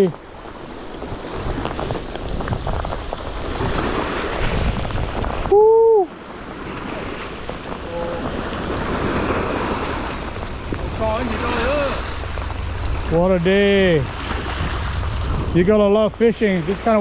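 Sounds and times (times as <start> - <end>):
rain: 0.0 - 17.0
waves washing onto rocks: 0.0 - 17.0
wind buffeting microphone: 0.0 - 17.0
loud rising falling tone: 10.0 - 16.4.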